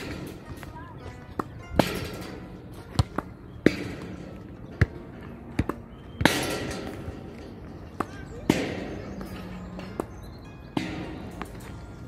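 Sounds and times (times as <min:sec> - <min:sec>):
tennis ball hit with racket: 0:00.0 - 0:10.2
ball bouncing on hard court: 0:02.9 - 0:06.9.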